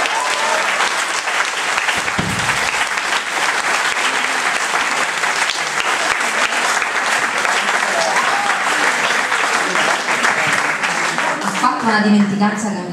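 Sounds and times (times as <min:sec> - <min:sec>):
audience applauding: 0:00.0 - 0:12.4
low thump: 0:02.0 - 0:03.5.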